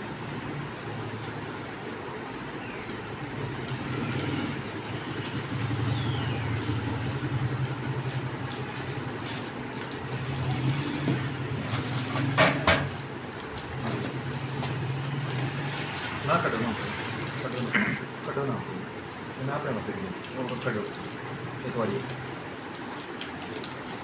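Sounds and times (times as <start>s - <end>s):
plastic packaging crinkling: 2.5s - 17.7s, 19.4s - 24.0s
sharp knocks: 12.2s - 13.0s.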